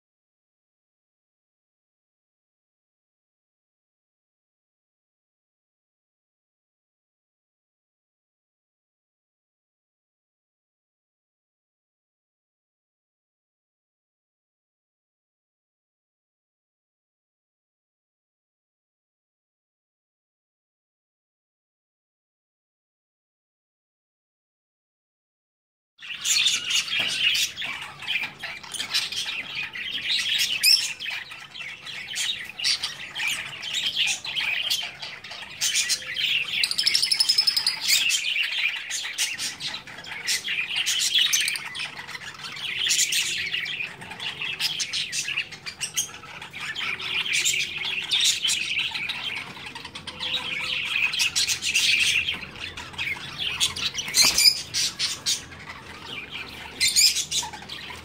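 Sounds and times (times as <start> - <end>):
lovebirds chirping: 26.0 - 58.0.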